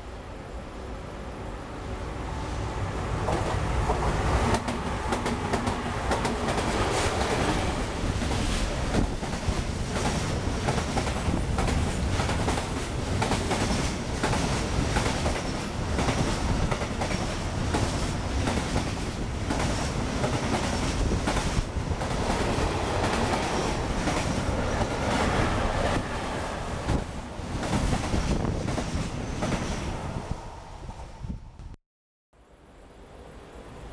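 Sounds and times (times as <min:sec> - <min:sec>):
freight train rumbling past: 0:00.0 - 0:31.8.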